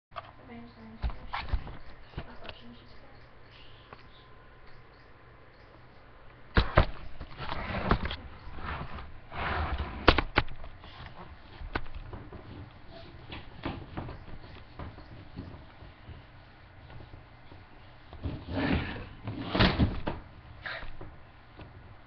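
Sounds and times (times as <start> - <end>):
rustling and scraping: 6.6 - 22.0.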